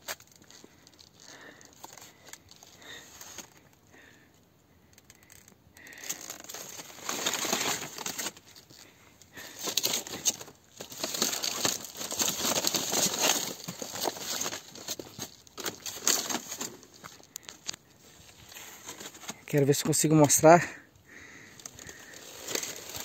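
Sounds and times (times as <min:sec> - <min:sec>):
stiff leaves rustling and crackling: 0:05.2 - 0:23.0.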